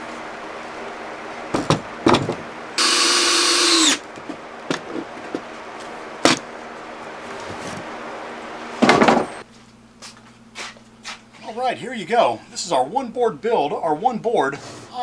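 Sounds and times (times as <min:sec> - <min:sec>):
cordless drill driving screw into wood: 0:02.8 - 0:04.0.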